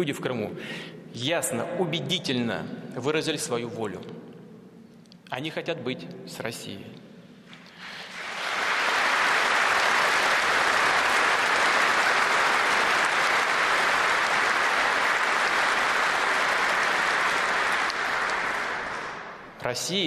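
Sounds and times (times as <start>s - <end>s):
large audience applauding: 7.7s - 19.6s.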